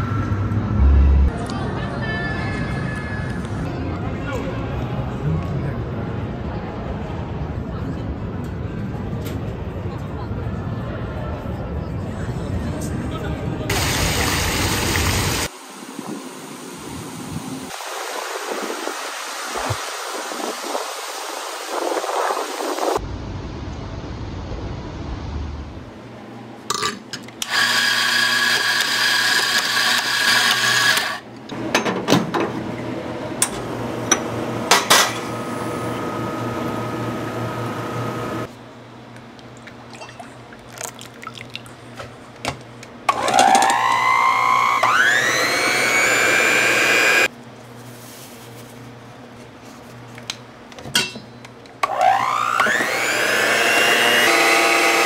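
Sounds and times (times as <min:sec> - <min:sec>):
coffee grinder motor running: 0:27.4 - 0:31.2, 0:43.1 - 0:47.3, 0:51.8 - 0:55.0
electric hand mixer whining: 0:27.5 - 0:31.2, 0:35.4 - 0:38.5, 0:43.1 - 0:47.3, 0:51.9 - 0:55.0.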